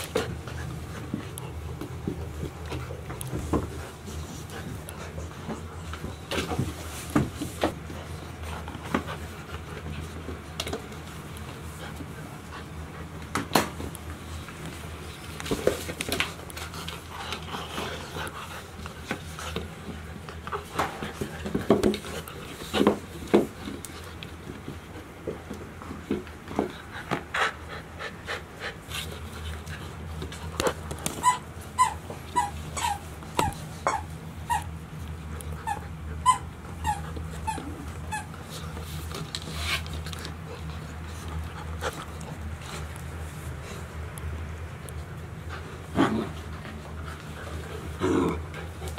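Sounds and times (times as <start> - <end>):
puppies scuffling and knocking: 0.0 - 12.2, 18.7 - 27.3
puppies panting: 26.5 - 44.0
puppy whimpering: 31.2 - 34.8, 35.6 - 38.3.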